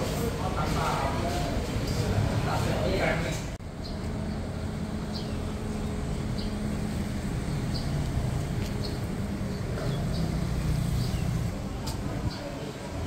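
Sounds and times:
street traffic rumble: 0:00.0 - 0:13.0
bird chirping: 0:03.7 - 0:11.5.

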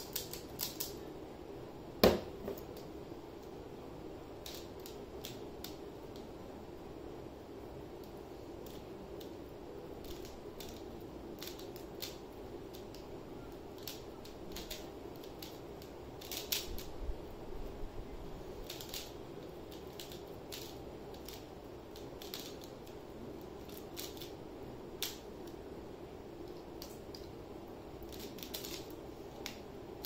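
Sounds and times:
plastic puzzle clicking: 0:00.0 - 0:01.0, 0:10.0 - 0:13.0, 0:13.7 - 0:16.9, 0:18.6 - 0:24.4, 0:25.0 - 0:25.3, 0:28.0 - 0:29.6
low room hum: 0:00.0 - 0:30.0.

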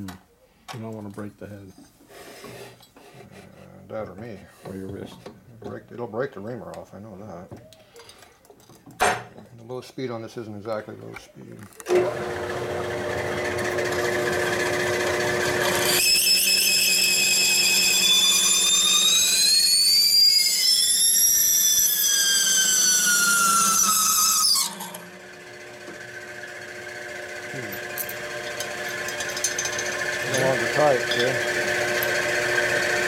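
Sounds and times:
drill press motor hum: 0:11.9 - 0:15.8, 0:23.1 - 0:33.0
reamer cutting squeal: 0:15.8 - 0:25.1, 0:28.9 - 0:32.7.

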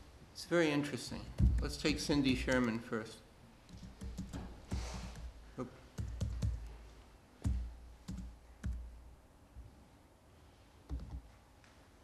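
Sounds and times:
laptop keyboard typing: 0:01.4 - 0:02.8, 0:03.7 - 0:05.3, 0:06.0 - 0:06.7, 0:07.5 - 0:08.9, 0:10.9 - 0:11.2.

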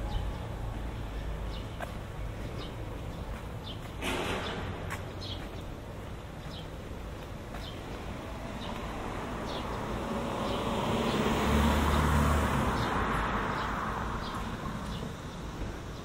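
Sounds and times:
car driving past: 0:08.2 - 0:15.0.

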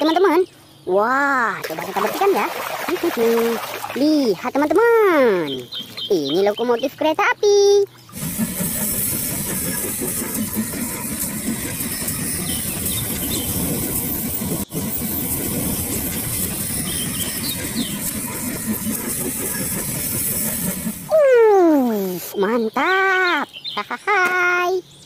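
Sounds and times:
steam locomotive exhaust: 0:08.0 - 0:22.4
steam hissing: 0:08.1 - 0:22.5.

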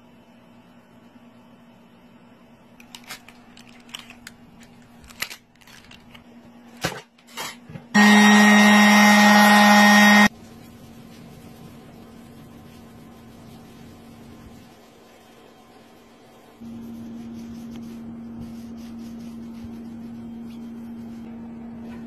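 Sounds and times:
orbital sander running: 0:08.0 - 0:10.3.

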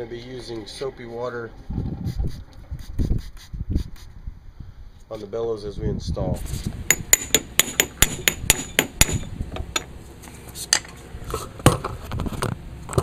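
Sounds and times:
hammer tapping metal tool: 0:06.9 - 0:09.9.

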